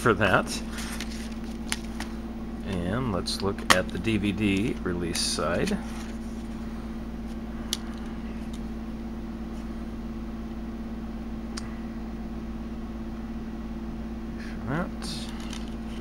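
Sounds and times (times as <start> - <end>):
steady low electrical hum: 0.0 - 16.0.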